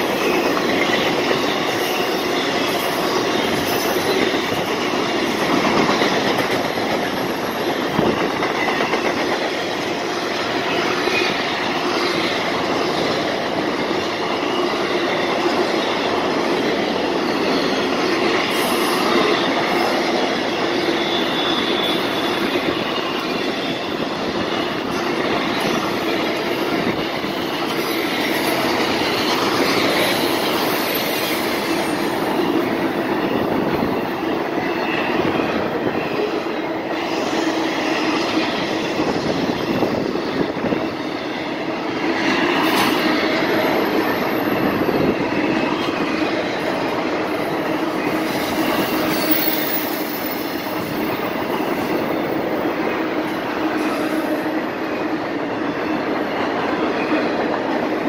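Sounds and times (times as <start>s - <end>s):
steel wheels on rail: 0.0s - 58.0s
faint high wheel squeal: 17.1s - 33.8s, 47.4s - 54.4s.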